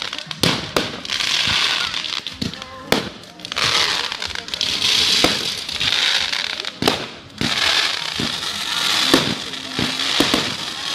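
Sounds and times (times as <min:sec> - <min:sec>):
firework bangs: 0:00.0 - 0:10.9
fireworks hissing and crackling: 0:00.0 - 0:10.9.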